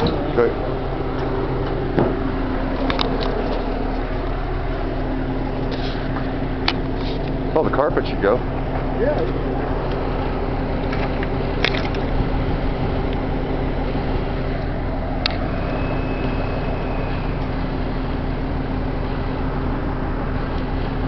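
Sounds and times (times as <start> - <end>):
fire popping and crackling: 0.0 - 7.6
fire rushing: 0.0 - 21.0
low hum: 0.0 - 21.0.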